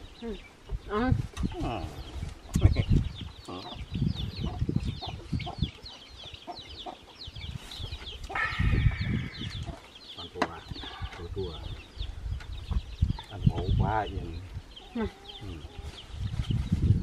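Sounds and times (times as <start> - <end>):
chicks peeping: 0.0 - 17.0
drawn-out chicken call: 8.3 - 9.9.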